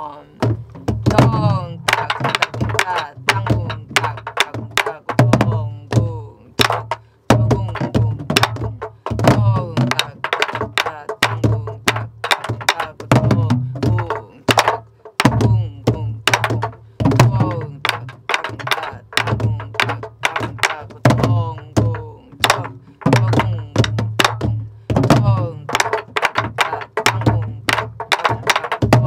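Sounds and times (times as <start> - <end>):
barrel drums played: 0.4 - 29.0
voices singing: 1.1 - 6.5.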